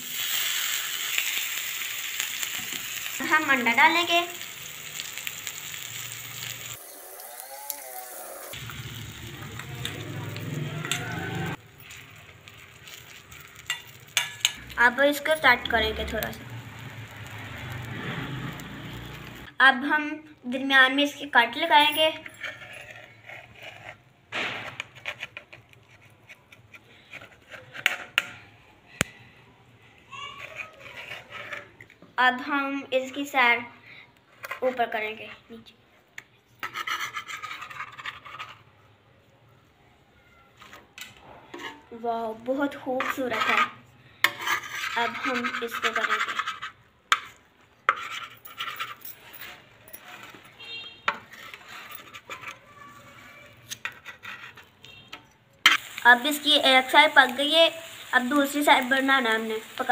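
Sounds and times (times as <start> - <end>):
knife scraping on metal pan: 22.1 - 28.5, 30.3 - 31.8, 36.6 - 38.7, 41.4 - 41.9, 42.9 - 55.9.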